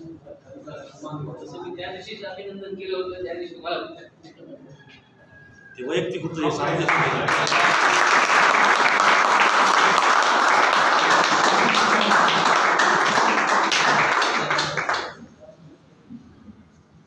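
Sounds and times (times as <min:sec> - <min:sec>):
audience applauding: 0:06.6 - 0:15.4.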